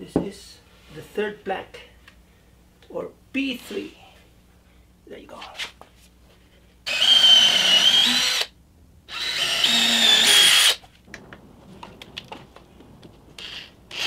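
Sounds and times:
cordless drill whining: 6.9s - 8.5s, 9.1s - 10.8s, 13.4s - 14.0s.

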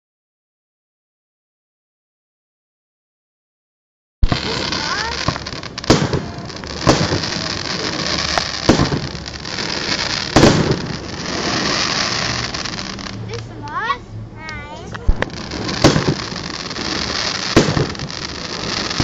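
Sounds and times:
firework shells bursting: 4.2s - 13.5s, 15.0s - 19.0s
small firework pops: 4.2s - 13.8s, 14.5s - 19.0s.

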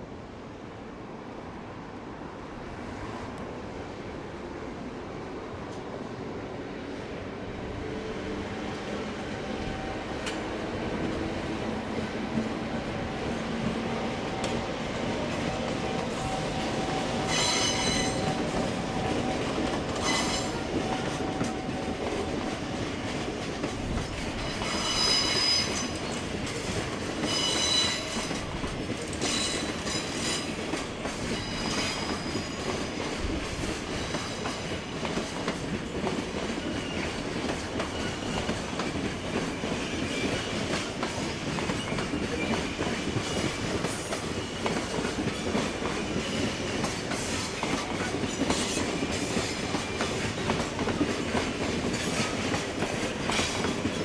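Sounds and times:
train wheels clicking over rail joints: 10.2s - 54.0s
high-pitched wheel squeals: 17.3s - 18.4s, 20.0s - 20.6s, 24.6s - 26.0s.

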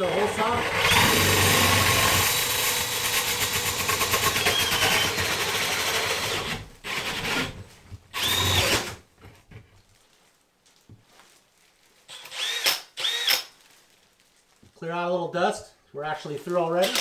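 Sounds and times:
power drill cutting drywall: 0.0s - 9.0s, 12.1s - 13.5s, 16.8s - 17.0s.

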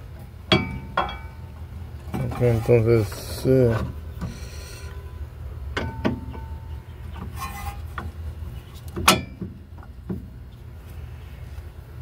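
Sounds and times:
metal clinks and knocks: 0.5s - 1.5s, 5.8s - 6.7s.

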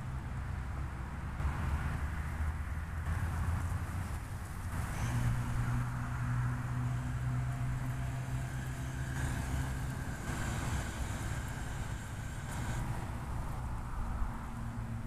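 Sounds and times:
low motor hum: 4.7s - 13.8s
rushing noise: 6.8s - 14.4s.

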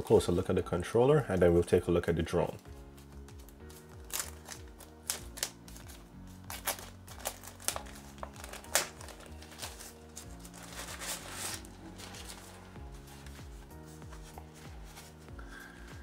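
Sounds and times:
soft background music: 0.0s - 16.0s
plastic bag crinkling: 3.5s - 13.3s.

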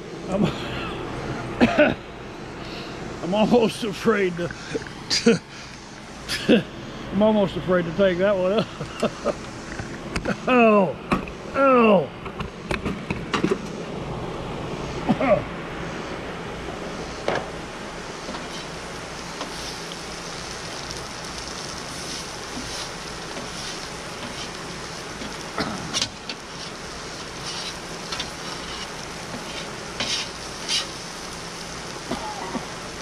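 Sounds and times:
peppers sizzling on a griddle: 7.9s - 10.3s, 16.7s - 33.0s.

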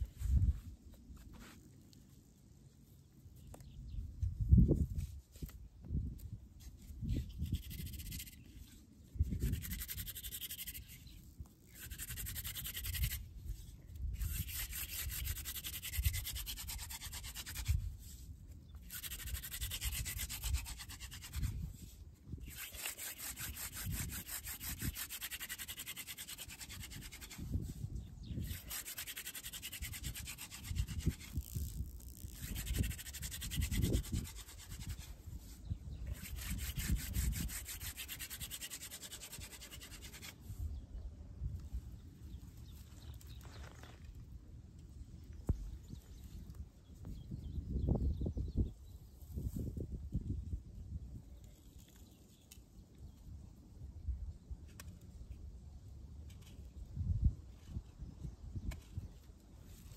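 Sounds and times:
wooden spindle rubbing hiss: 9.4s - 13.3s, 22.4s - 27.6s, 28.4s - 40.4s.

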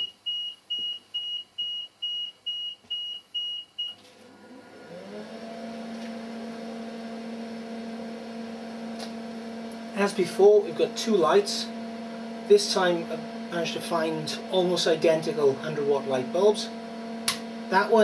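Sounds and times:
electrical hum rising in pitch: 4.2s - 18.0s.

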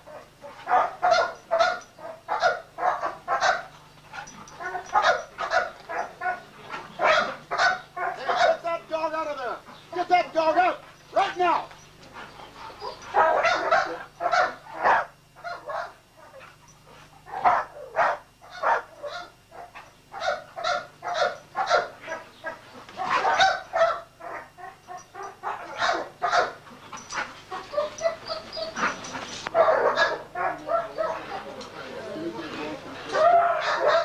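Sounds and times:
dog barking: 0.0s - 3.7s, 4.6s - 8.7s, 12.8s - 16.4s, 17.3s - 26.6s, 27.5s - 31.6s, 33.1s - 34.0s.

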